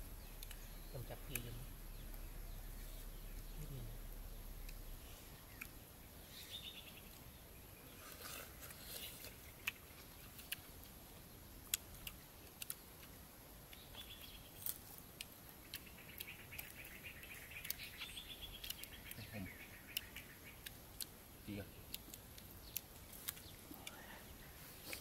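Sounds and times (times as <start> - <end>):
birds chirping: 0.0 - 25.0
rural background noise: 0.0 - 25.0
sharp clicks: 11.6 - 21.2.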